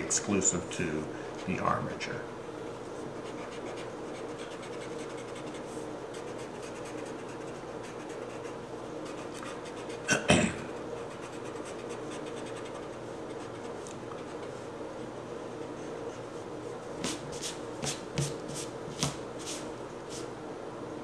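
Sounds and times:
pencil scratching on paper: 3.2s - 10.1s, 11.0s - 14.5s.

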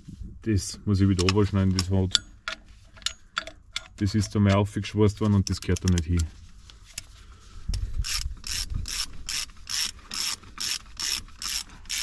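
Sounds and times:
ratchet wrench clicking: 8.0s - 12.0s.

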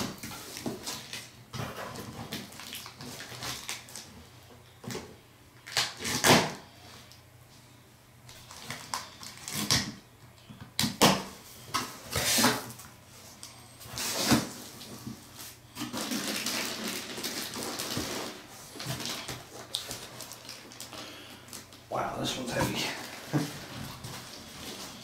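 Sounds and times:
packing rustling: 13.9s - 21.8s.

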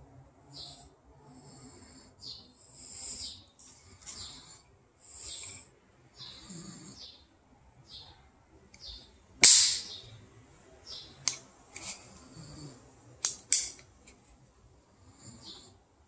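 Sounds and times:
pistol hammer metallic snaps: 9.4s - 10.0s, 13.2s - 13.8s.

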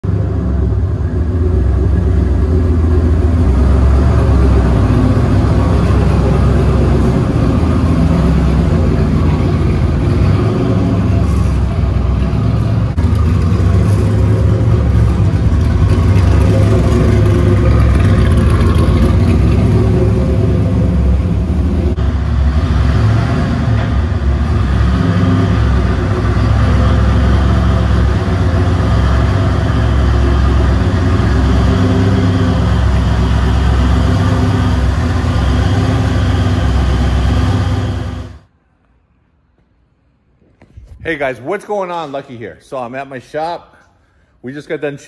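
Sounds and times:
truck engine exhaust rumble: 0.0s - 38.6s.

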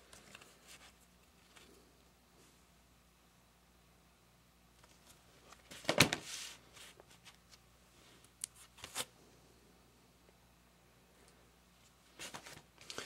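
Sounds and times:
cardboard record jackets rustling: 12.0s - 13.0s.

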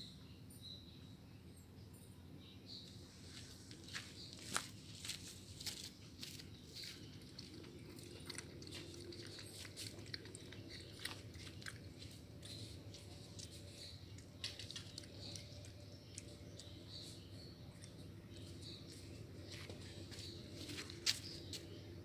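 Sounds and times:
puppy lapping water: 7.4s - 13.5s.

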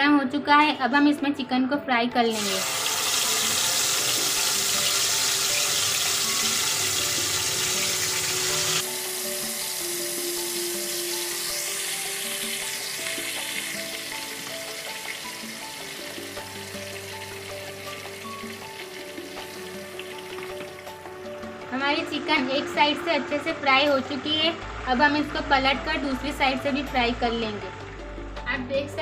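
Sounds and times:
soft background music: 0.0s - 29.0s
chicken deep-frying in oil: 2.3s - 21.1s.

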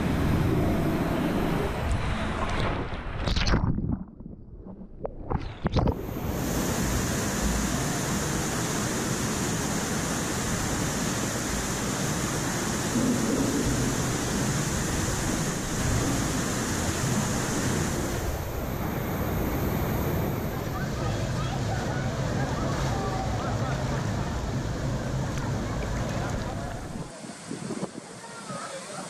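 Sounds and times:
water rushing down slide: 4.8s - 29.0s.

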